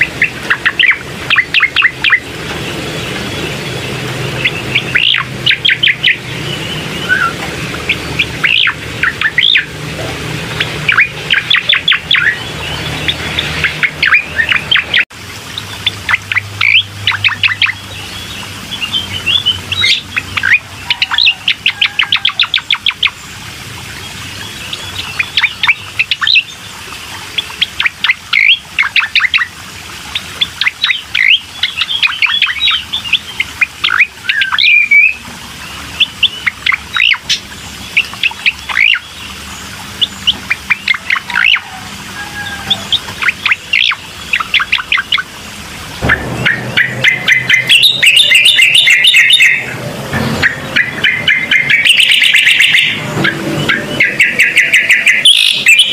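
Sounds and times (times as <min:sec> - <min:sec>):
bird chirping and trilling: 0:00.0 - 0:55.9
low hum: 0:44.0 - 0:51.9.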